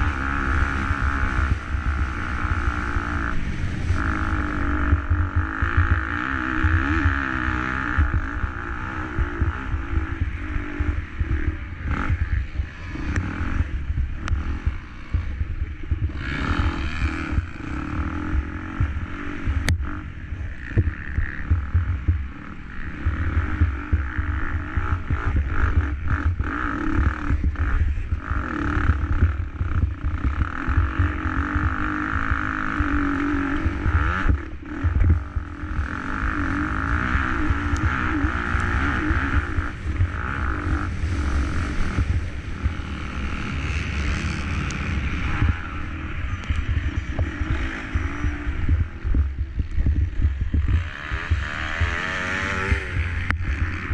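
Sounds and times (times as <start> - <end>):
motorbike engine revving hard: 0.0 - 53.9
wind rumble on microphone: 0.0 - 53.9.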